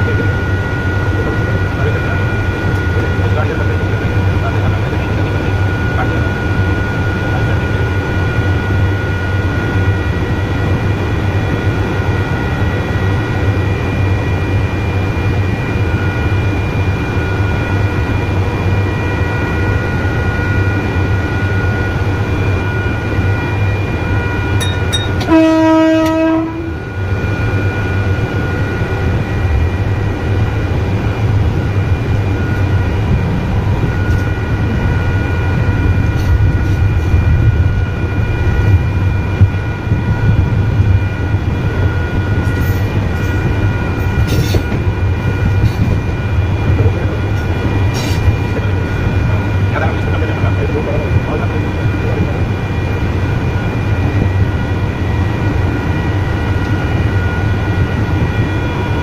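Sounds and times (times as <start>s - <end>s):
electric train running: 0.0s - 59.0s
train horn: 25.2s - 27.0s.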